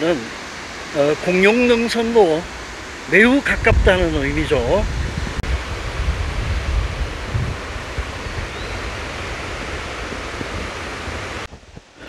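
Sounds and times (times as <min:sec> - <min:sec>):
stream water rushing: 0:00.0 - 0:12.0
wind rumble on microphone: 0:02.6 - 0:12.0.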